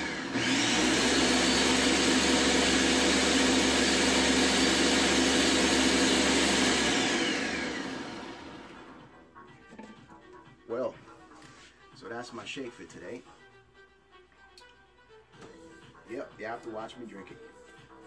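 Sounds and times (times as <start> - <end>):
blender motor running: 0.0 - 9.1.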